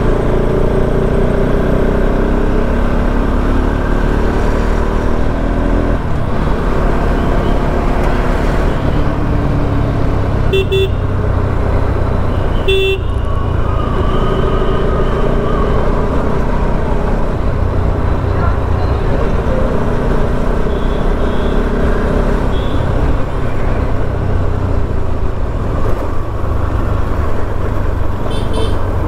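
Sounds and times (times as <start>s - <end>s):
wind and road noise: 0.0s - 29.0s
vehicle horn tooting: 10.5s - 11.1s, 12.4s - 13.4s, 20.7s - 21.7s, 22.5s - 23.0s, 28.3s - 28.9s.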